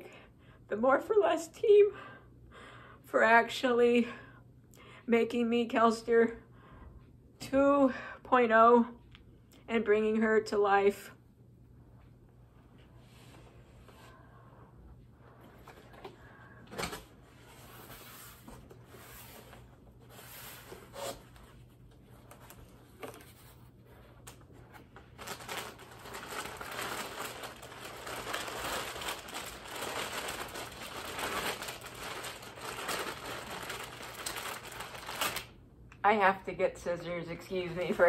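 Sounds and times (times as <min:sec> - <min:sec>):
plastic wrapping crinkling: 0:24.2 - 0:35.6, 0:37.5 - 0:38.0.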